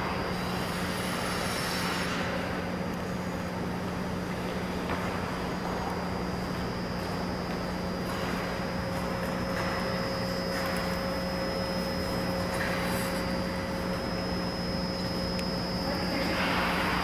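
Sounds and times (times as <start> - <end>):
ventilation machinery hum: 0.0 - 17.0.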